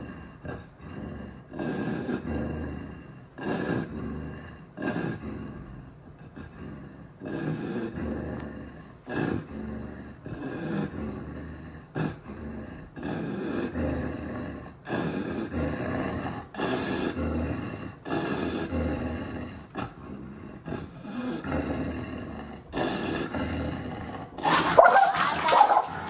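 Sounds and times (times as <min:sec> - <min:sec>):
dog growling: 0:00.0 - 0:26.0
dog snarling: 0:06.3 - 0:26.0.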